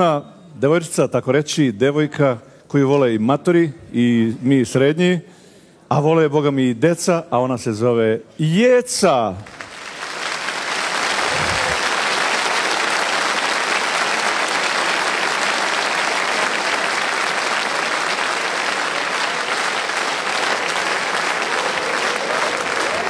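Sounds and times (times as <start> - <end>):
audience applauding: 9.4 - 23.0.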